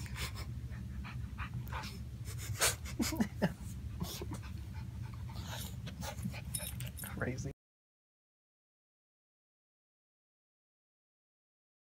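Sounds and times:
small dog panting: 0.0s - 2.9s, 4.0s - 7.3s.

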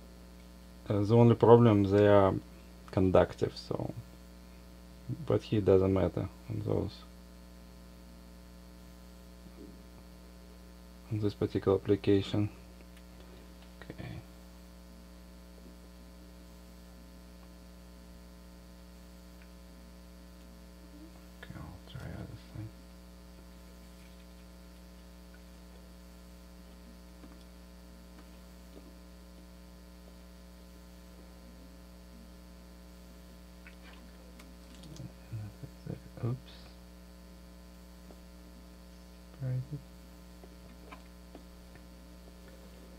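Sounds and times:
electrical mains hum: 0.0s - 42.9s.

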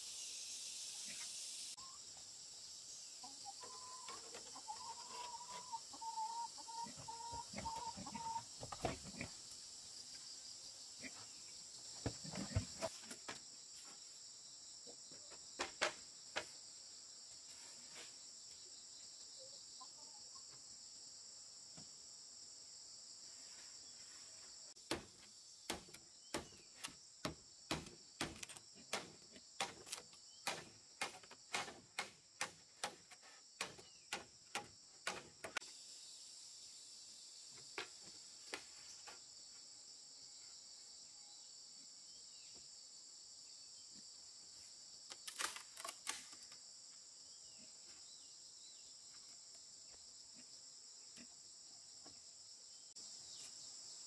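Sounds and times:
crickets chirping: 0.0s - 54.0s
knocks on wooden poles: 24.9s - 26.6s, 27.2s - 35.6s.

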